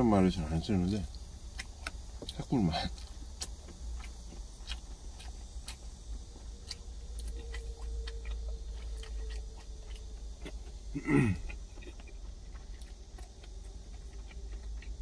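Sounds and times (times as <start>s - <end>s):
steady low hum: 0.0s - 15.0s
person chewing food: 1.0s - 15.0s.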